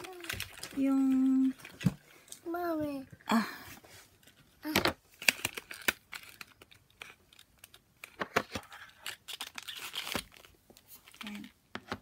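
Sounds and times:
packaging rustling: 0.0 - 2.4, 5.2 - 11.6.

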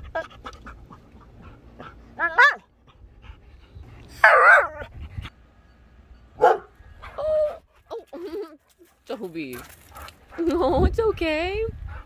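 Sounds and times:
dog barking: 2.2 - 2.6, 6.4 - 6.7.

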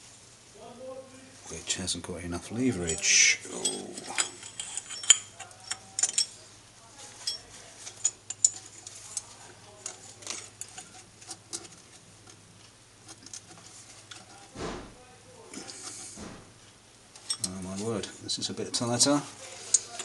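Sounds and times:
metal tools clinking on metal: 2.5 - 6.4, 7.2 - 11.0, 17.2 - 18.2, 18.8 - 20.0.

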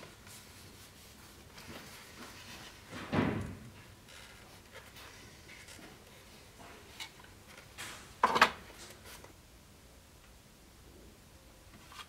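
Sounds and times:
rubbing and rustling: 0.0 - 9.4.

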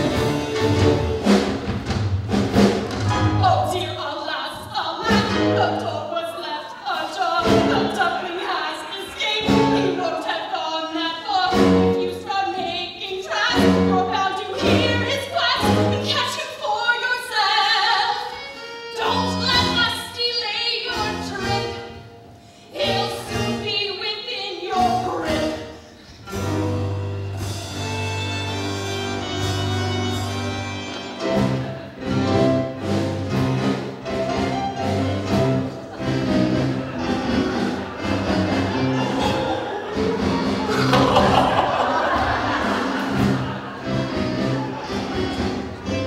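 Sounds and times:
instrumental accompaniment: 0.0 - 4.1, 24.7 - 46.0.

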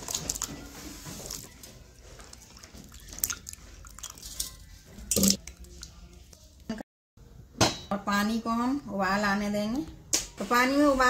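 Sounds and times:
water splashing and sloshing: 0.0 - 6.0.

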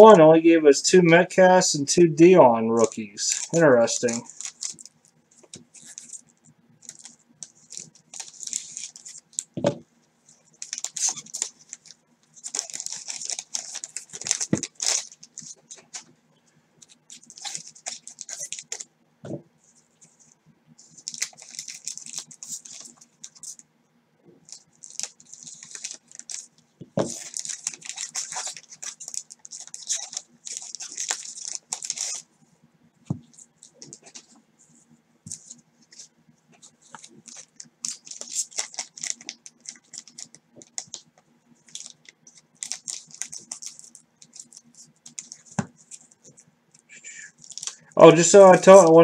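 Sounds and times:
card pack wrappers tearing and crinkling: 2.8 - 9.6, 10.4 - 16.1, 16.8 - 18.9, 20.9 - 23.6, 24.4 - 32.2, 35.3 - 46.4, 47.3 - 47.8
cards shuffling: 3.2 - 9.8, 10.5 - 16.1, 16.8 - 18.8, 20.9 - 23.6, 24.4 - 32.2, 35.3 - 41.1, 41.7 - 46.4.

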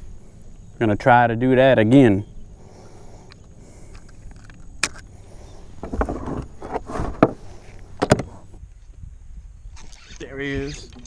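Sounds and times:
sharp clicks and knocks: 8.0 - 8.4.

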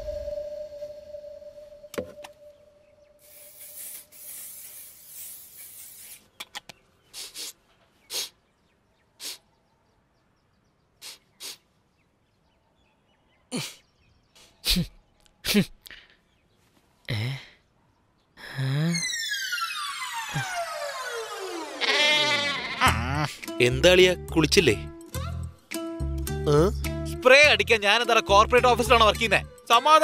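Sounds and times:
person sniffing: 3.2 - 6.3, 7.1 - 8.4, 9.2 - 9.5, 11.0 - 11.6
aerosol spray hissing: 3.2 - 6.4.

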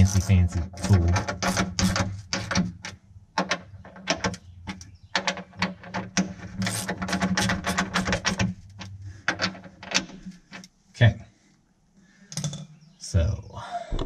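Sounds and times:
metal clicks and knocks: 0.5 - 10.7.

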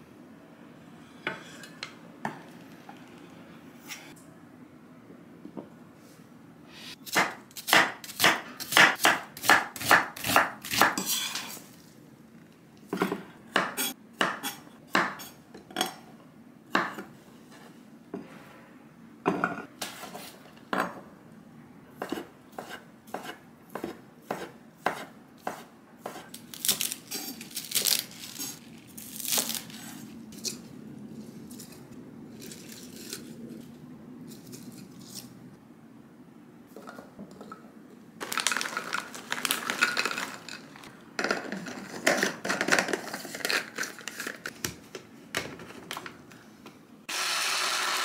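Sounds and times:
knife chopping on wooden board: 22.0 - 26.3.

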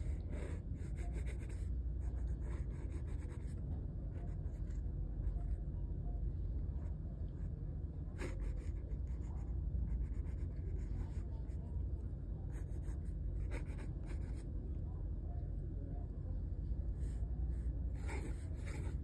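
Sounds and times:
pencil scratching on paper: 0.0 - 3.6, 8.2 - 11.7, 12.5 - 14.5, 18.0 - 19.0.

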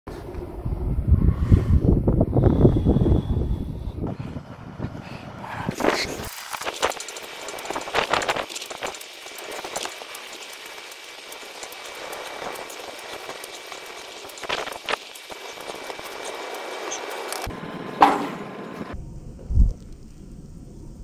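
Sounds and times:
steady hiss: 5.7 - 17.8.

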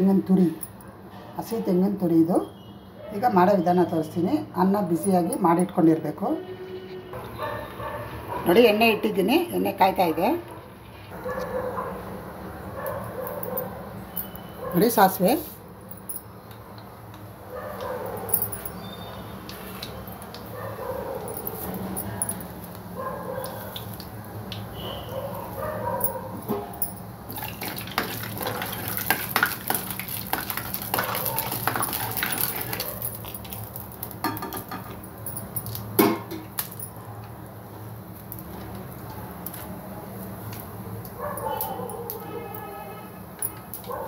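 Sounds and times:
seeds popping and crackling: 27.3 - 34.4
seeds sizzling in hot oil: 27.3 - 34.8.

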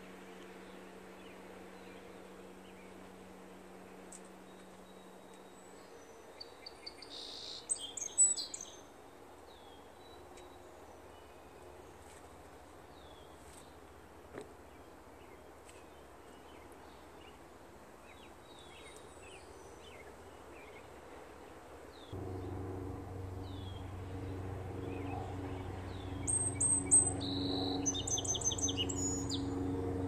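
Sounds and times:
small birds chirping: 3.9 - 8.9, 9.5 - 21.1, 23.4 - 30.0.

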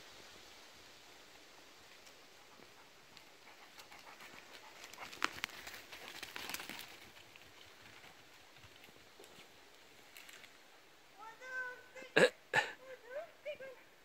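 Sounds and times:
dog panting: 2.4 - 6.2
paws crunching dry leaves: 3.2 - 10.3.

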